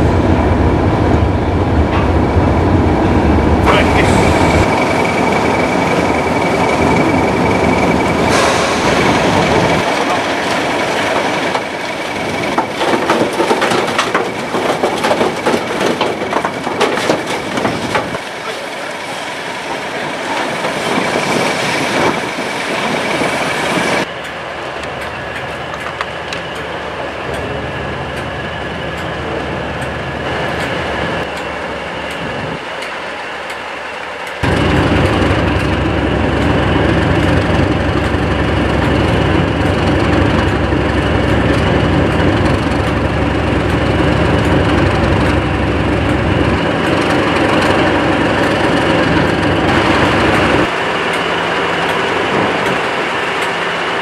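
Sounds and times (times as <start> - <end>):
diesel locomotive engine idling: 0.0 - 20.8, 24.0 - 54.0
hiss: 8.2 - 10.7.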